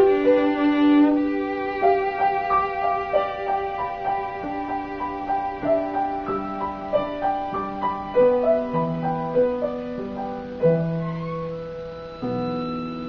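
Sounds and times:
cello bowed notes: 0.0 - 7.3, 11.3 - 13.0
piano playing: 0.0 - 13.0.

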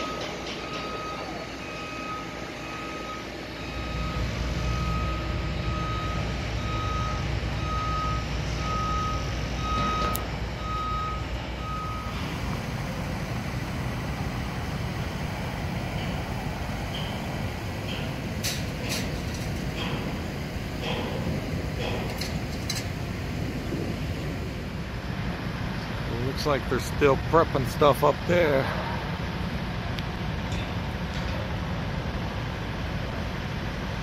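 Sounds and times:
reversing alarm beeping: 0.0 - 23.5
low diesel engine rumble: 0.0 - 34.0.

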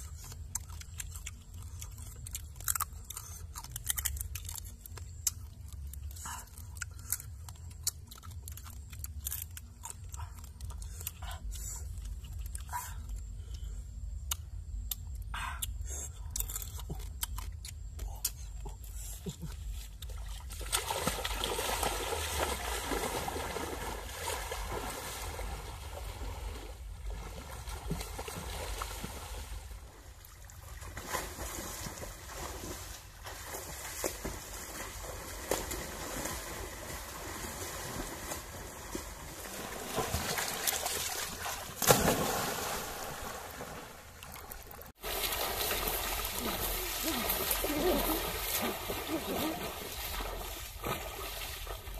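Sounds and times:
crab shells cracking: 3.5 - 5.4
water splashing: 20.1 - 51.9.

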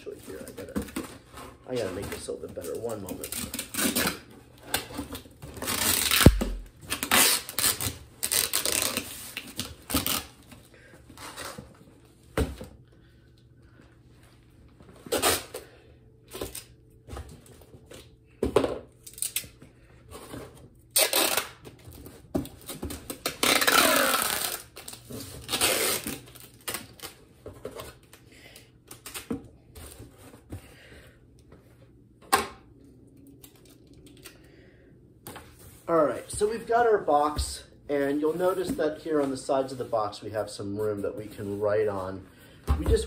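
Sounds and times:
packing tape ripping: 3.1 - 10.4, 15.1 - 15.6, 19.0 - 19.6, 20.9 - 21.8, 22.6 - 27.2.

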